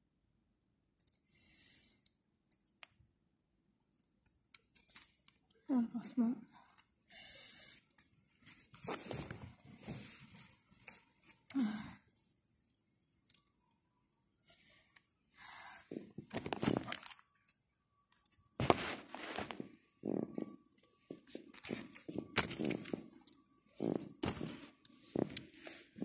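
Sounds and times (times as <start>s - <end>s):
bandage wrapper tearing and rustling: 16.3s - 17.2s.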